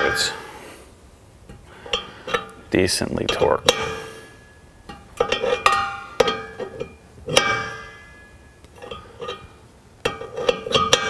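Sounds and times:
wrenches clinking on metal: 0:04.9 - 0:08.2, 0:10.0 - 0:11.0.

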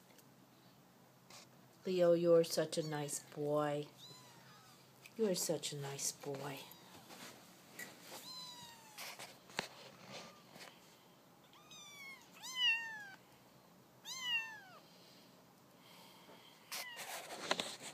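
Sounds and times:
kitten mewing: 0:04.0 - 0:04.8, 0:08.2 - 0:09.2, 0:11.5 - 0:13.2, 0:14.0 - 0:14.8.

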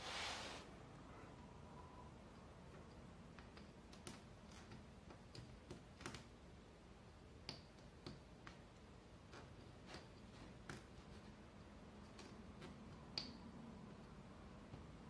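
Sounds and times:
thread clicking on metal nails: 0:02.7 - 0:06.5, 0:07.1 - 0:11.2, 0:12.0 - 0:15.0.

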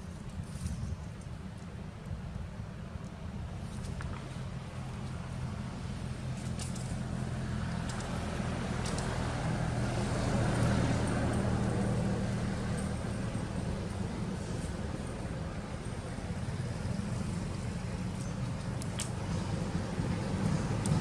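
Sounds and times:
low engine rumble: 0:00.0 - 0:21.0
faint high ticks: 0:08.8 - 0:09.2.

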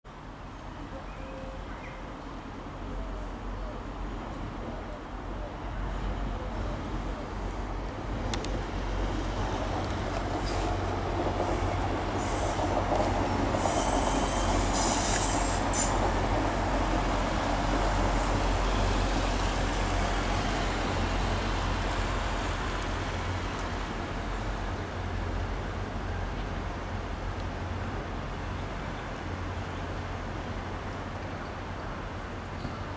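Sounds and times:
diesel train running: 0:05.6 - 0:32.5
high wheel squeal: 0:12.2 - 0:12.7, 0:13.6 - 0:16.0.

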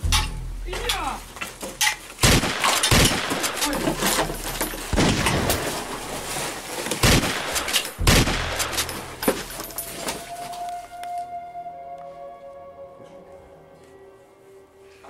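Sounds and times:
video game pistol shots: 0:02.2 - 0:03.7, 0:07.0 - 0:09.1.

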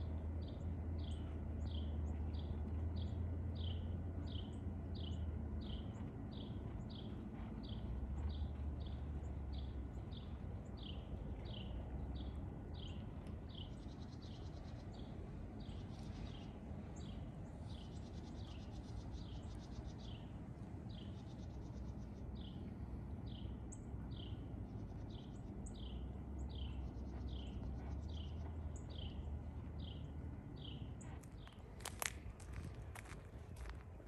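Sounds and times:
low rumble: 0:20.2 - 0:34.0.

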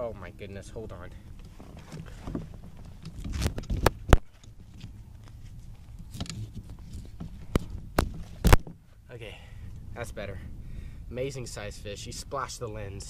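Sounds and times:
cloth rubbing camera lens: 0:01.6 - 0:08.7.

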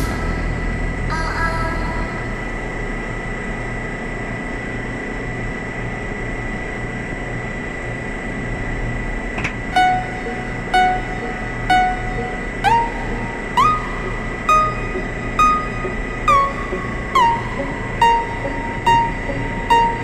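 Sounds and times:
high whine: 0:00.0 - 0:05.2, 0:08.6 - 0:20.0
refrigeration units humming: 0:00.0 - 0:20.0
short pitched beep: 0:09.8 - 0:20.0.

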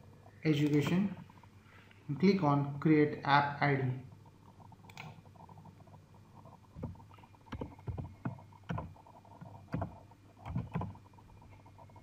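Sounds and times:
keyboard keystrokes: 0:06.8 - 0:09.0.

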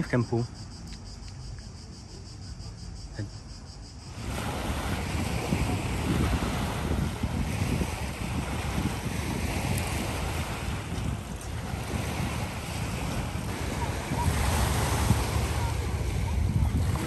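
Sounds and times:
crickets chirring: 0:00.0 - 0:17.0
waves lapping on pebbles: 0:04.1 - 0:17.0
wind buffeting microphone: 0:04.1 - 0:17.0.

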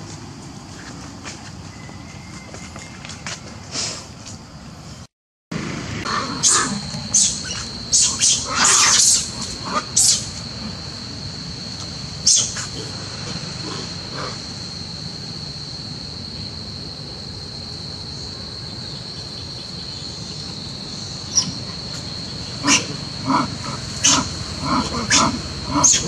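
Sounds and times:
insects trilling: 0:05.6 - 0:26.0
monkey squeals: 0:06.1 - 0:10.3, 0:25.0 - 0:26.0.

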